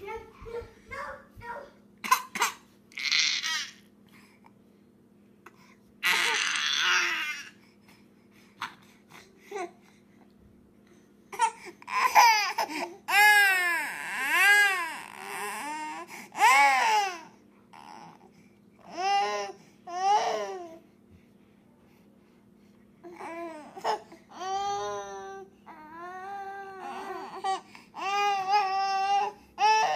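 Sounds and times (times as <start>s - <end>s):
infant crying: 3.0s - 3.8s, 6.0s - 7.6s, 11.4s - 20.8s, 23.1s - 29.9s
infant shrieking: 3.0s - 3.8s, 6.0s - 7.5s
infant whimpering: 23.0s - 29.9s.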